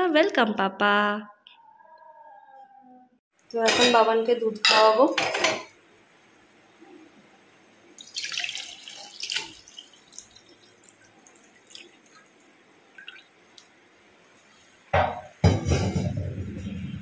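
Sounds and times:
milk pouring into steel tumbler: 0:08.0 - 0:13.3.

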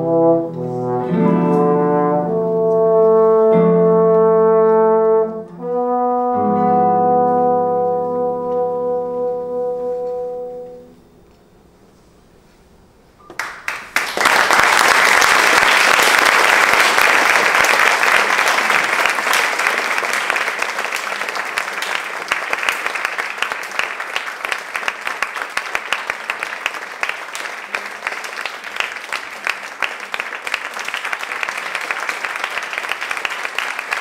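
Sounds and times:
audience applauding: 0:13.3 - 0:34.0.

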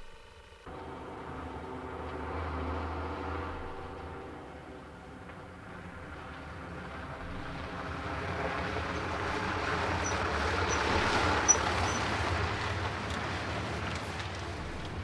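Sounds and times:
lorry engine and tyres on gravel: 0:00.0 - 0:15.0
short high squeaks: 0:10.0 - 0:12.2.

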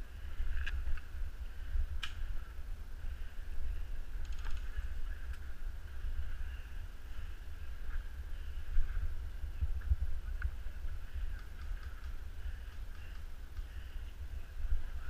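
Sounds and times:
muffled low rumble: 0:00.0 - 0:15.0
sharp clicks: 0:02.0 - 0:02.2, 0:11.2 - 0:13.7
rapid ticks: 0:11.1 - 0:14.1.

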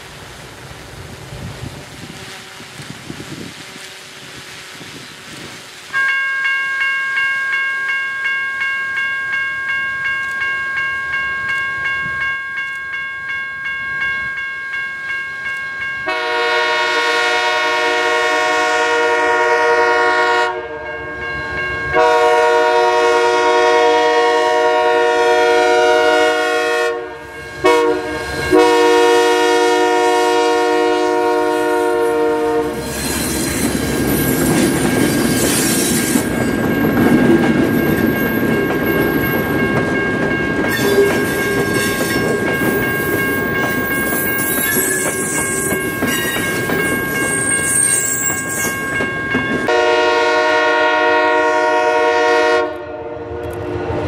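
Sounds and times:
passing train noise: 0:00.0 - 0:54.0
train air horn blasts: 0:02.0 - 0:04.6, 0:16.0 - 0:20.9, 0:21.9 - 0:33.0, 0:49.7 - 0:53.6
locomotive bell ringing: 0:05.9 - 0:18.0, 0:19.4 - 0:52.2.

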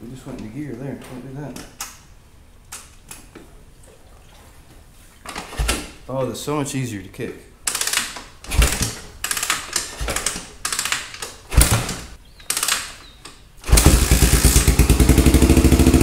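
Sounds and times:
engine kick-start: 0:13.6 - 0:16.0
engine running: 0:13.7 - 0:16.0.

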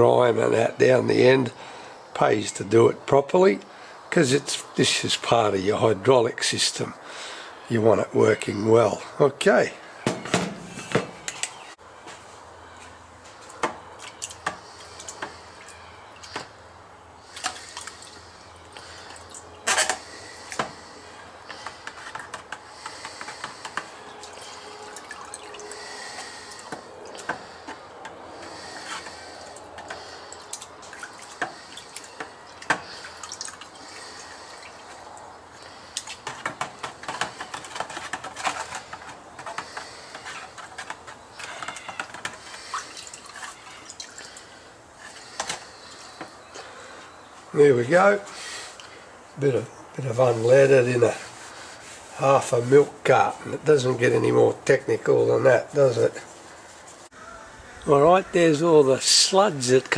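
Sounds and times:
liquid sloshing and dripping: 0:23.8 - 0:27.8, 0:29.0 - 0:36.4, 0:39.6 - 0:44.6.

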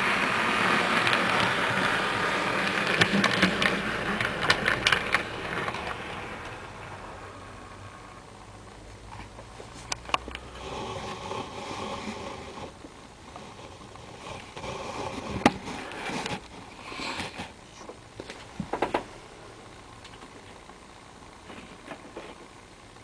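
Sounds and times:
model train wheels rattling: 0:00.0 - 0:07.0.

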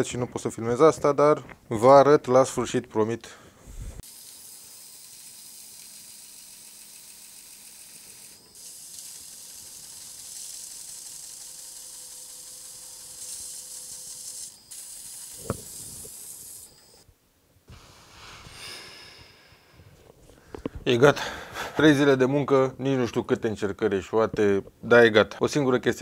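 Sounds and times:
sanding sponge hissing on motor: 0:04.0 - 0:17.0.

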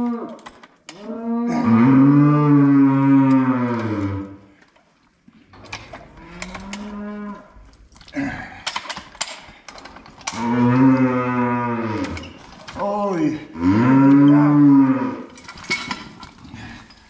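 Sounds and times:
cow bellowing: 0:10.4 - 0:12.3, 0:13.6 - 0:15.3.

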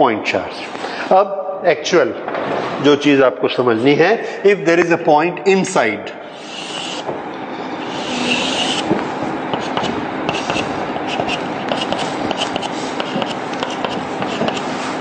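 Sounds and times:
chalk scraping on blackboard: 0:06.4 - 0:07.1, 0:07.8 - 0:15.0
chalk ticking on blackboard: 0:09.5 - 0:14.7.

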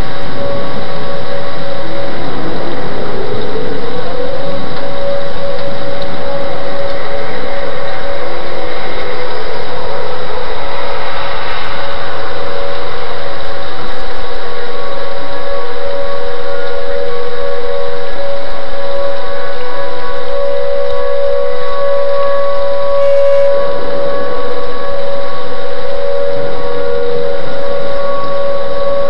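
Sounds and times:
heavy rain: 0:00.0 - 0:29.0
storm warning siren wailing: 0:00.0 - 0:29.0
wind: 0:00.0 - 0:29.0.

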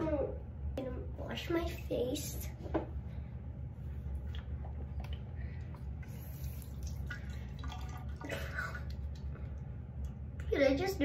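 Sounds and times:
steady low hum: 0:00.0 - 0:11.0
hands lathering soap: 0:04.2 - 0:10.2
water dripping in sink: 0:06.6 - 0:10.6.

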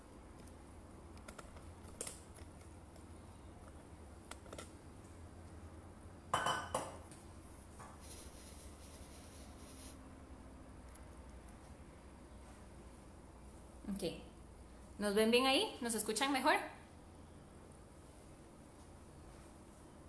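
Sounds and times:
glass clinking: 0:06.3 - 0:07.0.

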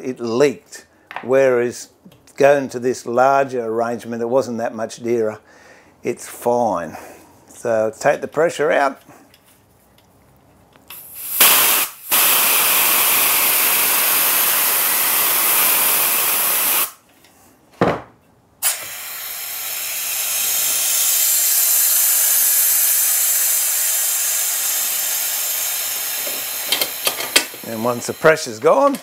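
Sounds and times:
compressed air hissing from valve: 0:10.9 - 0:17.0, 0:18.6 - 0:28.6.

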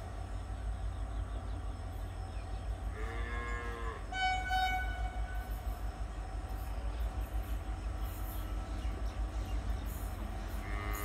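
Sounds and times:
distant locomotive horn: 0:02.8 - 0:05.8, 0:10.5 - 0:11.0.

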